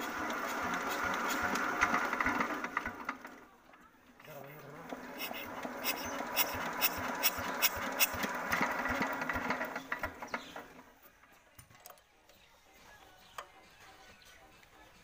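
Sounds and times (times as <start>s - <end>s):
diesel engine turning over: 0.0s - 3.5s, 4.7s - 10.9s
spanner clicking on metal: 5.2s - 8.2s.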